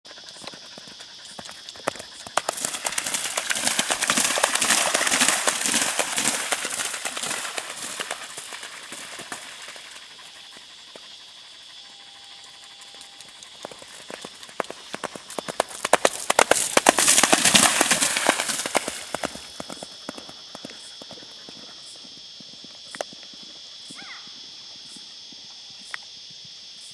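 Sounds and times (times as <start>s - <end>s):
horse hooves splashing through water: 1.9s - 10.3s, 13.2s - 20.3s.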